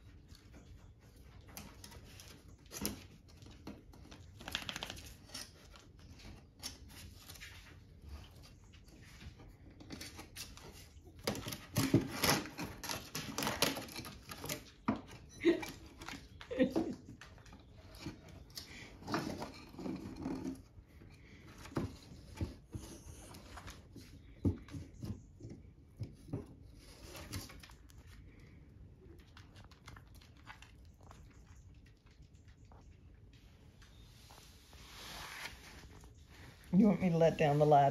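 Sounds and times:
puppy rummaging in sticks and papers: 0.0 - 30.8
puppy claws scraping: 17.2 - 37.9.

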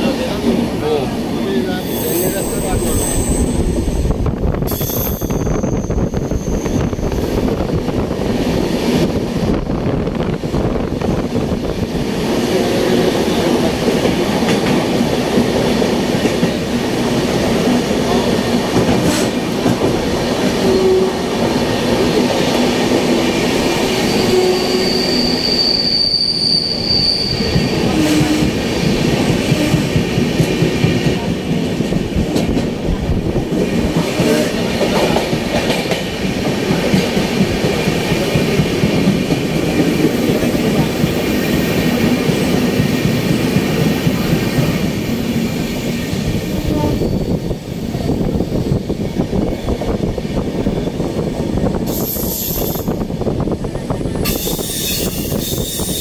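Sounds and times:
train wheels rumbling on rails: 0.0 - 56.0
high wheel squeal: 1.8 - 7.4, 24.0 - 28.4, 54.3 - 56.0.

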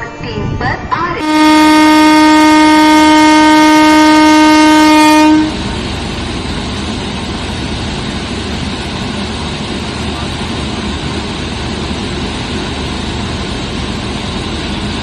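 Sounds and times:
train running noise: 0.0 - 15.0
train horn blast: 1.2 - 5.6.

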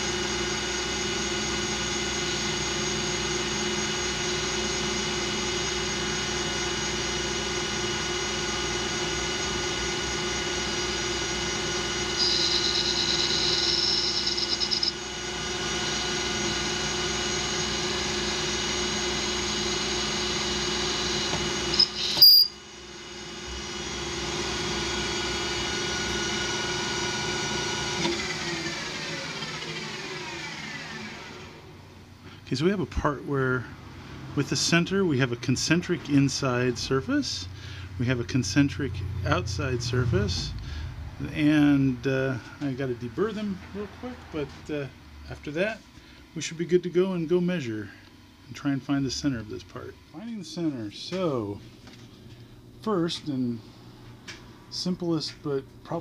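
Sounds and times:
metal lathe motor and gear whine: 0.0 - 31.7, 41.2 - 44.9
high-pitched cutting tone: 12.2 - 15.0.

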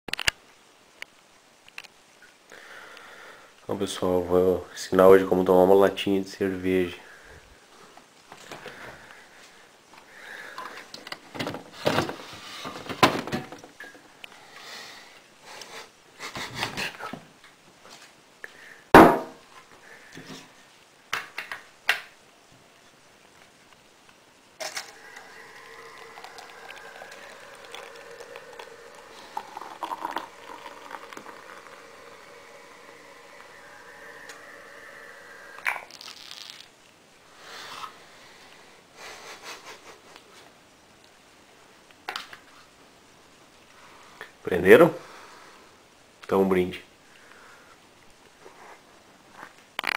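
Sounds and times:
beer sputtering and fizzing: 24.5 - 38.1.

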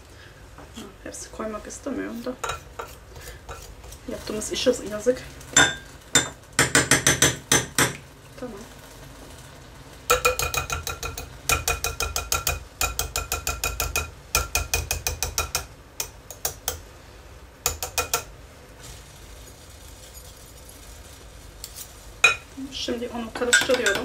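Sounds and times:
metal spoon tapping wire whisk: 10.1 - 16.8, 17.6 - 18.3, 23.4 - 24.0.

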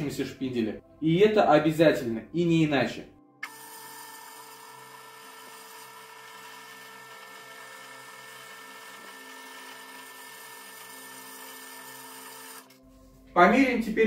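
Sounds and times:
drill press motor humming: 3.4 - 12.8.

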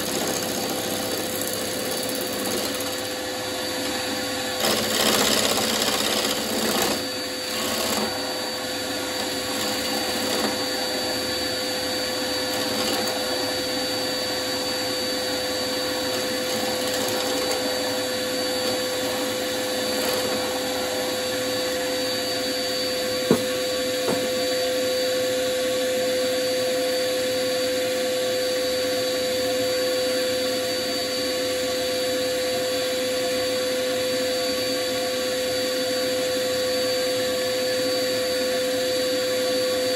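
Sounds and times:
turning tool cutting wood: 0.0 - 24.5
wood lathe whining: 0.0 - 39.9.

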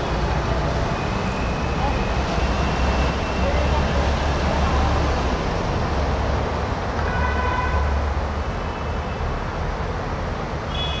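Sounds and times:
vehicle engines rumbling: 0.0 - 11.0
vehicle horn honking: 7.1 - 7.9, 10.7 - 11.0.

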